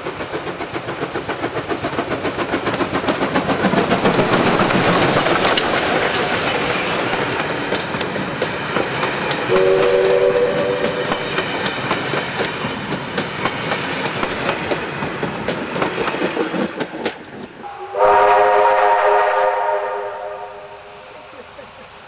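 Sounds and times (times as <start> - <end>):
train wheels clattering over rail joints: 0.0 - 18.0
steam whistle chord: 9.5 - 11.2, 17.6 - 21.2.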